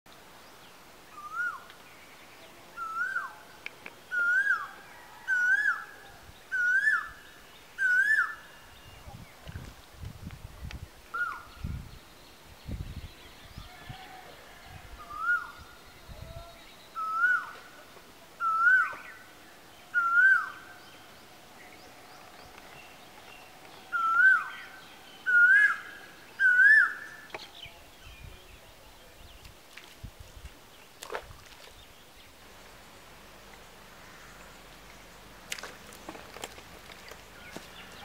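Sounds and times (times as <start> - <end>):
bird calling: 2.8 - 3.5, 13.5 - 27.8.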